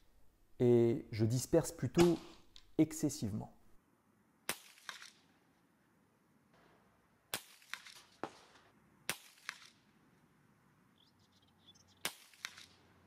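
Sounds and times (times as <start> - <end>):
rifle shots cracking: 4.5 - 5.3, 7.3 - 9.9, 12.0 - 13.0
fainter cracks: 7.4 - 9.9, 12.1 - 13.0.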